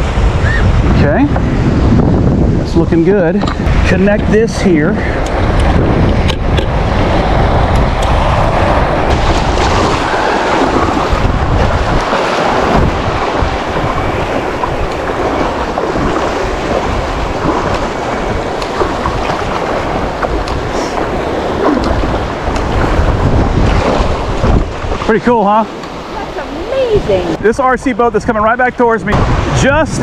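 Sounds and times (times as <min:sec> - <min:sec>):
wind buffeting microphone: 0:00.0 - 0:30.0
small waves breaking: 0:05.0 - 0:27.5.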